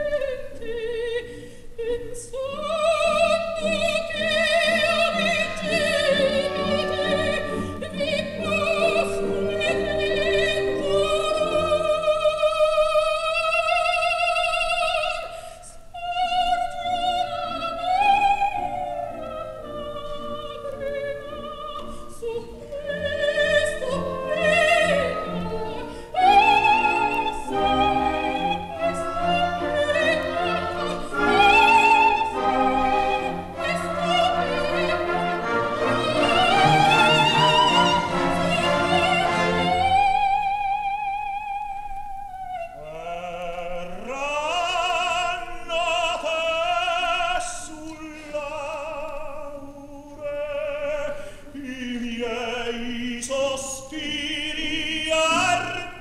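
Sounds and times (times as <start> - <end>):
operatic soprano singing: 0.0 - 56.0
orchestral accompaniment: 2.6 - 12.7, 17.0 - 40.6.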